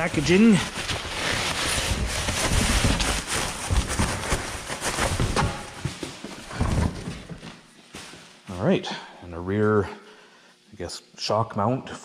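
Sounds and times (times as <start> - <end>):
packing material rustling: 0.0 - 8.2
parts knocking and clattering: 5.0 - 7.6.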